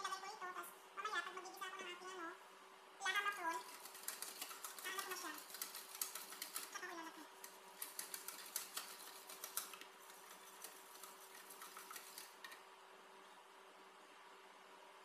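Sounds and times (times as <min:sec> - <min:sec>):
whisk clicking in metal saucepan: 0:03.5 - 0:06.8, 0:07.4 - 0:12.6.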